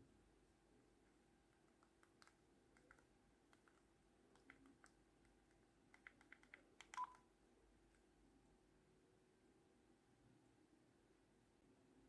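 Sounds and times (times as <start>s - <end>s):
phone keypad beeps: 6.9s - 7.2s.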